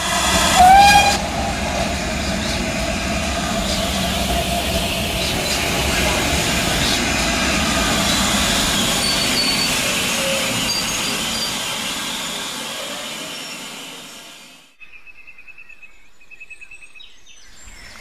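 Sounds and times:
locomotive running gear rumble: 0.0 - 14.4
steam hissing: 0.0 - 14.7.

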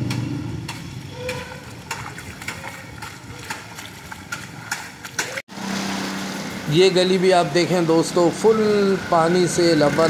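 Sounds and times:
sharp taps and splashes: 0.0 - 6.7
vehicle engine: 0.0 - 10.0.

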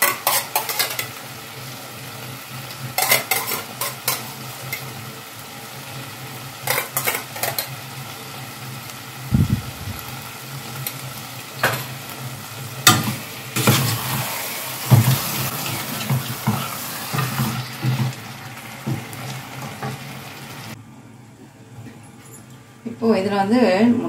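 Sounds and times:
chicken sizzling in pot: 0.0 - 20.8.

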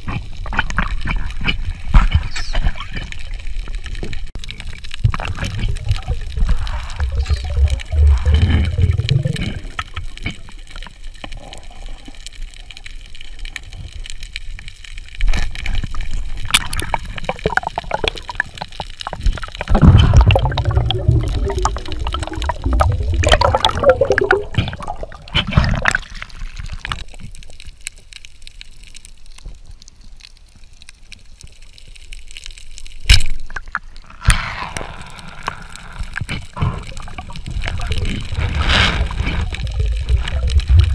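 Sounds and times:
muffled underwater bubbling: 0.7 - 12.1, 16.0 - 27.1, 33.5 - 40.9.

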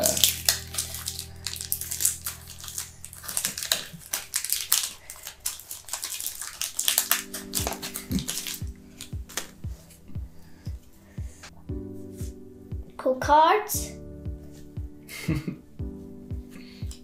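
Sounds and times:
foil wrapper crinkling and tearing: 0.0 - 9.6.

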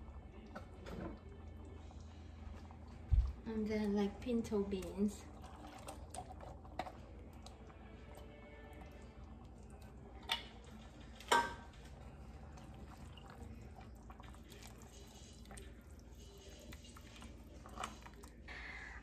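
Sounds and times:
tin can clinking against pot: 10.2 - 11.8.

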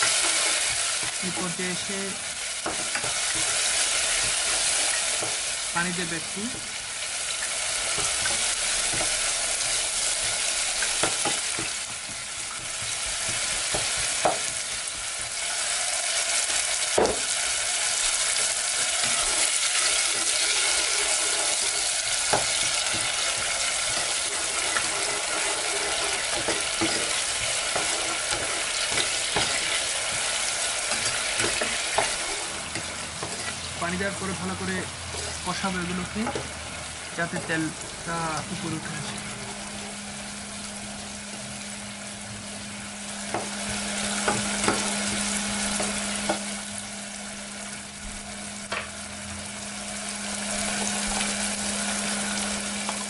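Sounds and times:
onions sizzling in oil: 0.0 - 53.0
spatula scraping and knocking pan: 7.8 - 15.7, 18.4 - 33.6, 43.3 - 46.5.

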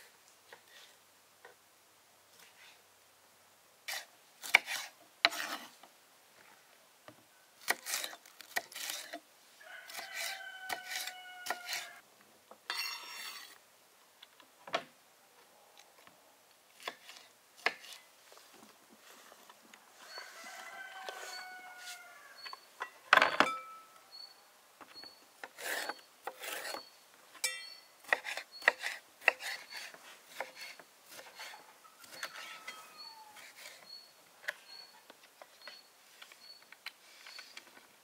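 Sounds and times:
handling knocks and scraping: 3.9 - 5.9, 12.5 - 13.6, 16.8 - 24.0, 24.8 - 38.0.

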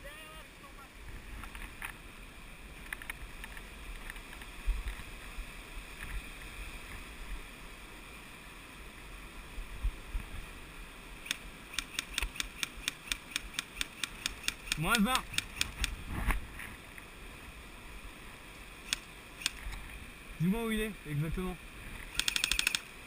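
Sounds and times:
stream rushing over stones: 0.0 - 23.0
wind on microphone: 15.2 - 16.8.

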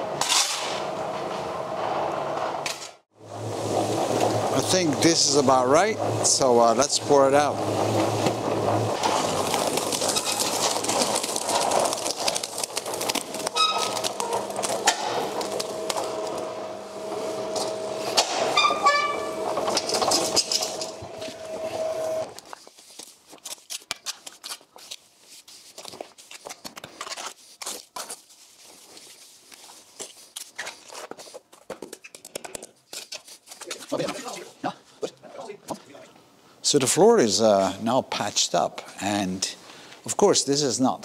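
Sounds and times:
cement mixer motor hum: 3.2 - 22.4
wet mortar pouring out: 9.0 - 14.8
short squeaks: 13.4 - 14.5, 18.5 - 20.5.

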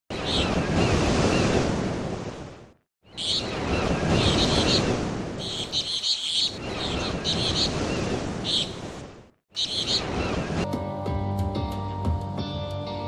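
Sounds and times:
high chirping: 3.0 - 8.8, 9.5 - 10.5.

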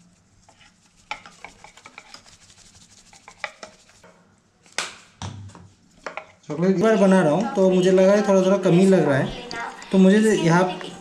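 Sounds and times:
whisk clicking against bowl: 0.5 - 4.1.

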